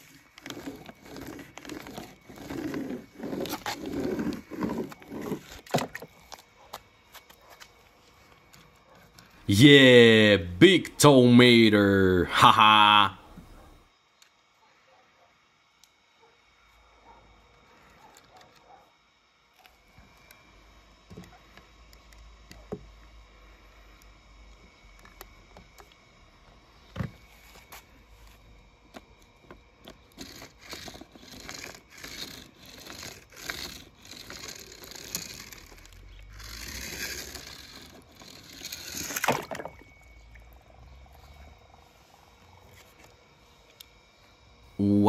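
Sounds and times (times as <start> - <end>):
toy wheels scraping through paint: 0.0 - 6.4, 29.8 - 39.8.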